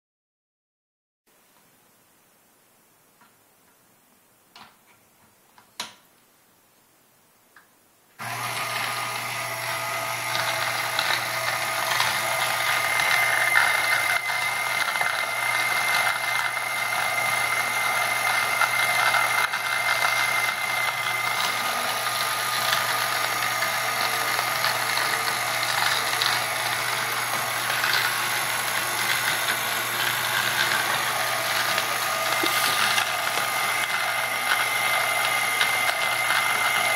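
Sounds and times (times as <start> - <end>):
coffee beans grinding: 8.2 - 36.9
mixer motor hum and whine: 8.2 - 36.9.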